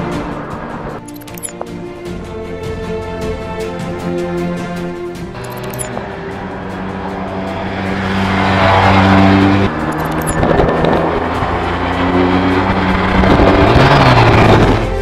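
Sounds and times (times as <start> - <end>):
background music: 0.0 - 15.0
motorcycle engine accelerating: 5.4 - 15.0.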